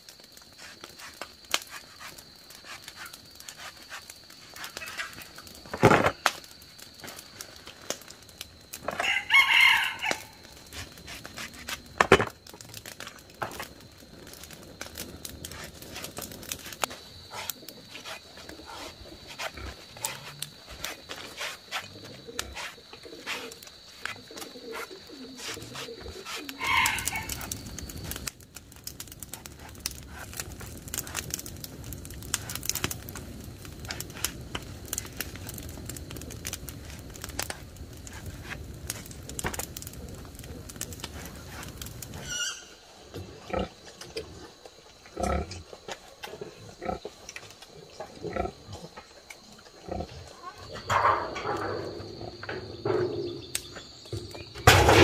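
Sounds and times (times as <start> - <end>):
rooster crowing: 9.0 - 10.5, 26.6 - 27.5.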